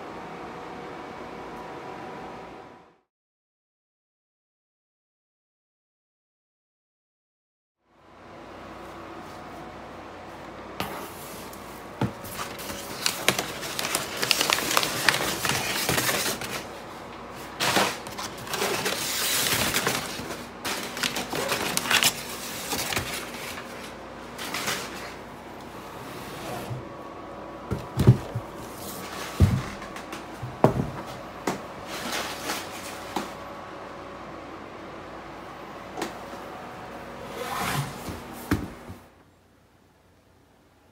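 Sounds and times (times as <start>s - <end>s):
packing paper rustling and crinkling: 11.2s - 25.2s
items knocking against box: 27.7s - 28.6s.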